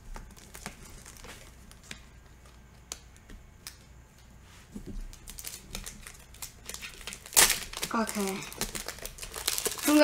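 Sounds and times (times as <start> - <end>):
foil pack crinkling: 0.0 - 2.6, 5.1 - 10.0.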